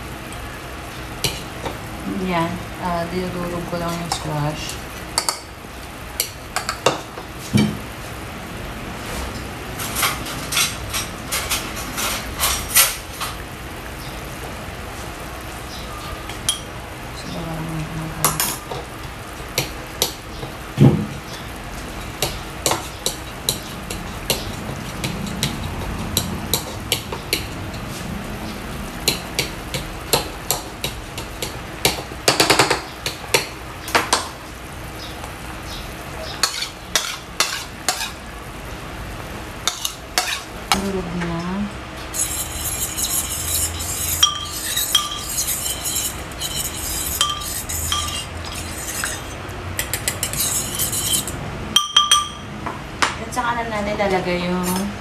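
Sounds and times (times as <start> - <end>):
spoon scraping food into pot: 36.4 - 38.2, 42.1 - 51.4
spoon clinking on ceramic plate: 42.1 - 52.4
spoon knocking: 42.2 - 52.4.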